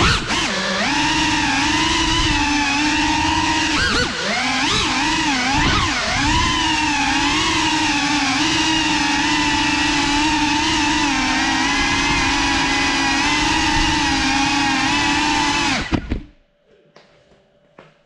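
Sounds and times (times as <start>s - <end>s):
drone motors whining: 0.0s - 16.3s
drone landing knocks: 15.8s - 16.4s.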